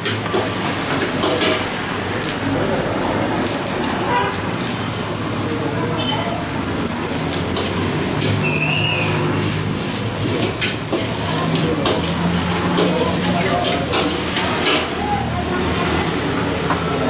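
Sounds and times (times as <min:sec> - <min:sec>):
rice sizzling in a wok: 0:00.0 - 0:17.0.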